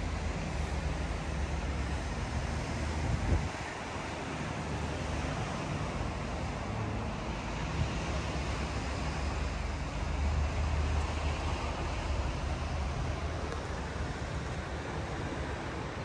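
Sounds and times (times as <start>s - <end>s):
road traffic: 0.0s - 16.0s
wind rumbling on microphone: 1.5s - 5.6s.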